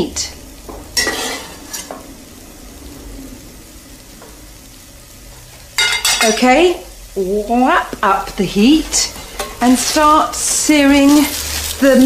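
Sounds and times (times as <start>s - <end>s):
vegetables sizzling in oil: 0.0s - 12.0s
metal spoon scraping pan: 1.0s - 2.0s, 9.0s - 10.0s.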